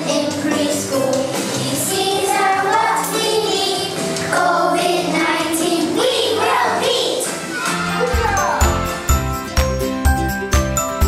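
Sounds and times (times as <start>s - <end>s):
children singing: 0.0s - 7.8s
instrumental backing music: 0.0s - 11.0s.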